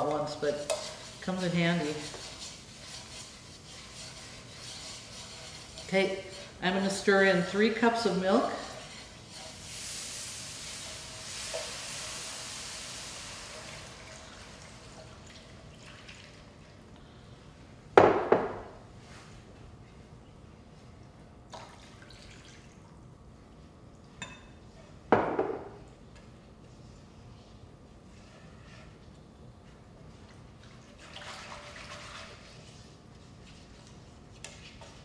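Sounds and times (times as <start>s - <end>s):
milk hissing in hot pan: 8.4s - 15.0s.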